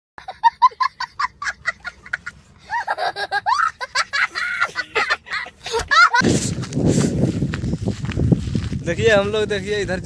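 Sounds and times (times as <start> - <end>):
young child laughing: 0.2 - 6.4.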